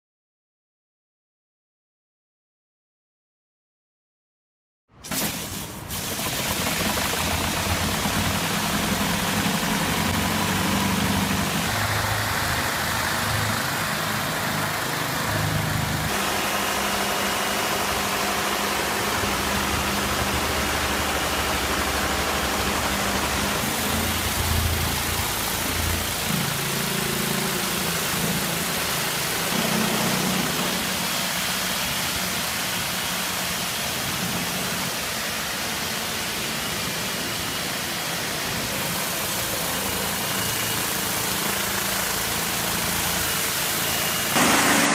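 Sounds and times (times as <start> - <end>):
high-pressure water jet hissing: 5.1 - 44.9.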